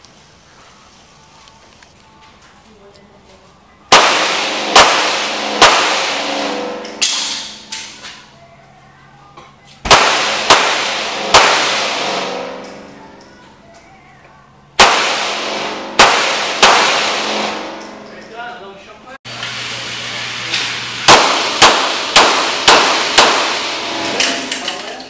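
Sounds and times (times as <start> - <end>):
handgun shots echoing indoors: 3.9 - 8.0, 9.8 - 13.2, 14.8 - 18.1, 21.0 - 24.6.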